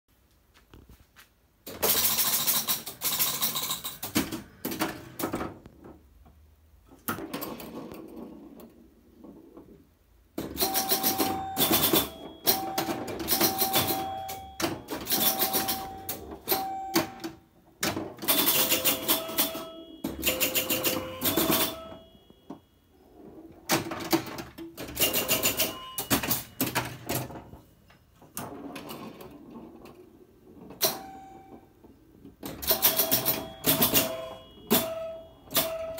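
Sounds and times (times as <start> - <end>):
pinball machine clacking: 1.7 - 6.0, 6.9 - 9.8, 10.4 - 35.9.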